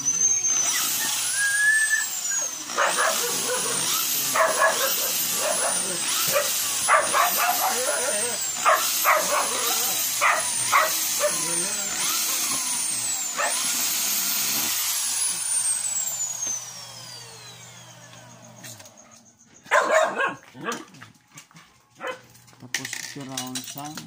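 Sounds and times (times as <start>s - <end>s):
electric drill whining: 0.0s - 19.3s
dog barking: 2.8s - 11.5s, 13.4s - 13.6s, 19.6s - 21.0s, 22.0s - 22.3s.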